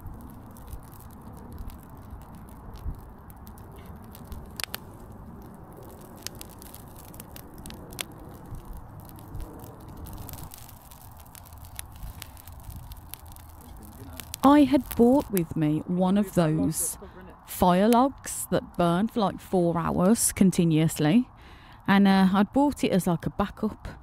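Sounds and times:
wind rumble on microphone: 0.0s - 16.0s
bonfire crackling and popping: 0.0s - 21.9s.

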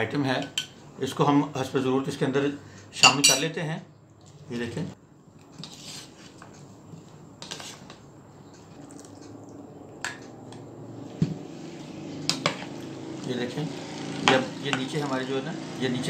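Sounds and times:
spoon knocking against bowl: 3.0s - 3.4s
spoon stirring wet food: 5.4s - 11.2s.

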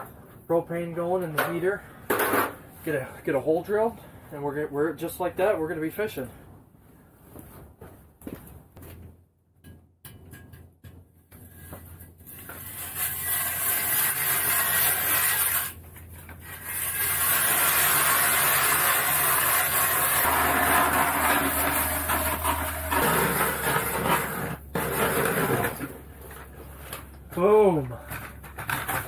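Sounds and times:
ice auger grinding through ice: 12.3s - 15.8s, 16.4s - 26.5s.

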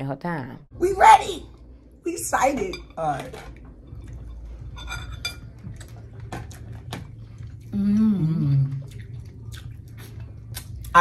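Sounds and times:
person humming mm: 7.7s - 9.0s.

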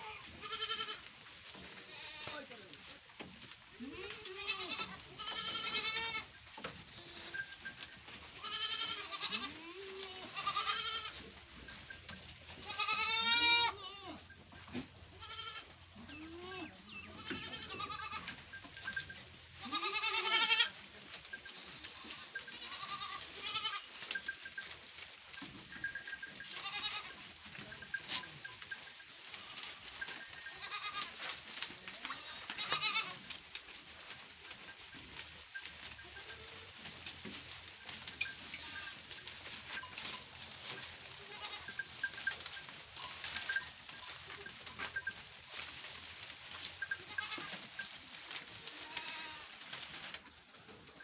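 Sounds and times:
goats bleating: 0.0s - 1.0s, 1.8s - 2.5s, 3.8s - 6.3s, 6.9s - 7.6s, 8.4s - 11.3s, 12.6s - 14.3s, 15.1s - 18.4s, 19.6s - 20.8s, 21.5s - 23.9s, 26.4s - 27.2s, 29.3s - 31.2s, 31.9s - 33.3s, 38.4s - 39.0s, 41.2s - 42.4s, 46.8s - 47.8s, 48.7s - 49.6s.

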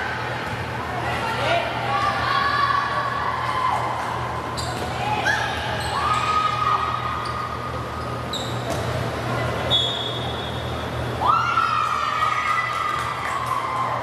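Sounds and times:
murmur of hall: 0.0s - 14.0s
sneakers squeaking on wooden court: 4.5s - 5.1s, 7.2s - 10.8s.

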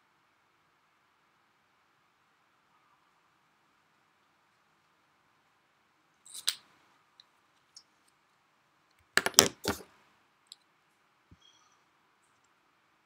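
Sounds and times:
small objects clicking: 6.2s - 6.7s, 9.2s - 9.8s.

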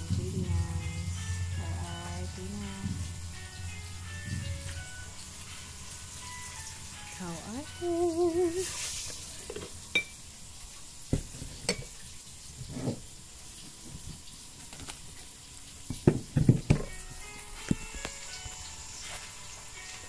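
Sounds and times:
food sizzling in frying pan: 0.0s - 20.0s
utensils knocking and clattering: 15.9s - 16.9s.

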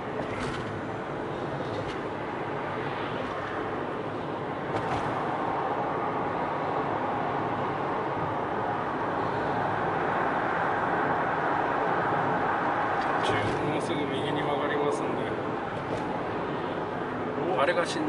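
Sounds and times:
road and tyre noise in car: 0.0s - 18.0s.

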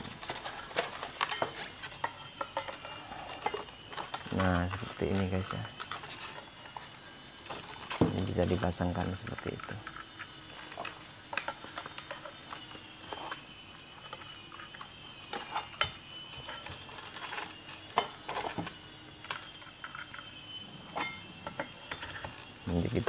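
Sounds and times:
metal parts clinking and knocking: 0.3s - 6.8s, 14.0s - 20.3s.

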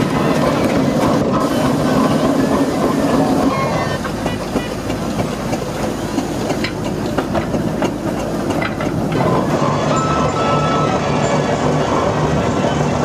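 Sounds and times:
steam engine hissing: 0.0s - 13.0s
sharp clicks and knocks: 4.1s - 9.3s.

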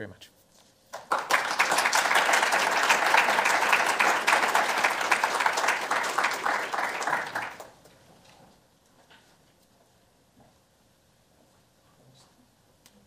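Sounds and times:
audience applauding: 1.0s - 7.8s.

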